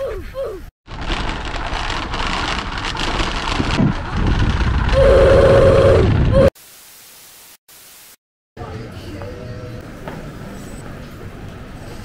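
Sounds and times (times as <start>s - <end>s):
bike rattling over cobblestones: 0.9s - 5.0s
wind noise on microphone: 0.9s - 6.5s.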